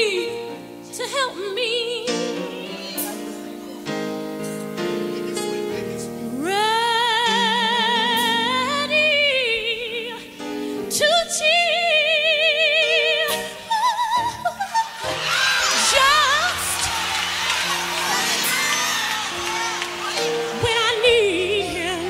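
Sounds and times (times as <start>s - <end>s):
woman singing gospel: 0.0s - 3.3s, 6.3s - 17.0s, 20.5s - 22.0s.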